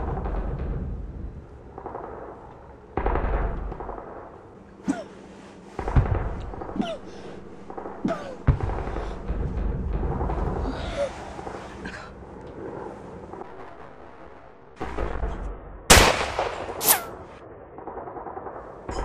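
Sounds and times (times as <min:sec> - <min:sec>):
low rumble: 0:00.0 - 0:19.0
heavy booms: 0:05.7 - 0:11.6.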